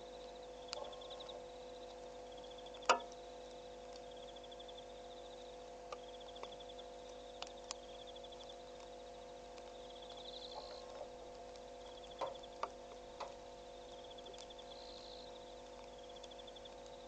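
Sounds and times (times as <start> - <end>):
insects trilling: 0.0 - 17.0
steady low hum: 0.0 - 17.0
faint clicks and knocks: 2.7 - 4.0, 8.7 - 14.6.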